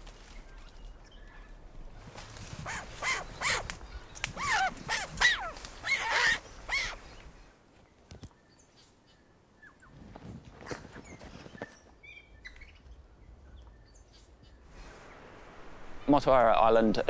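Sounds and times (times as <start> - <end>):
animal high whining calls: 2.6 - 3.7, 4.3 - 7.0.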